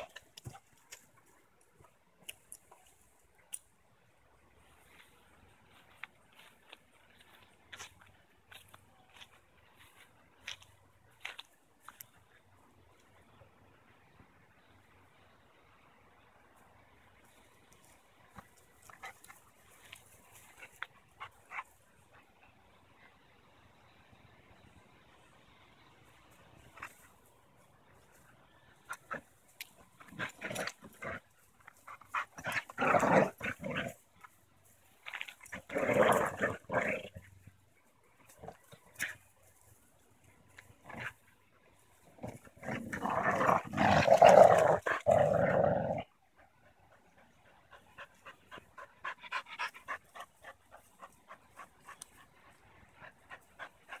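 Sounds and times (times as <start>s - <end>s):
dogs play-growling: 28.9s - 34.0s, 35.2s - 37.4s, 40.8s - 41.2s, 42.0s - 46.2s
dog panting: 46.3s - 54.0s.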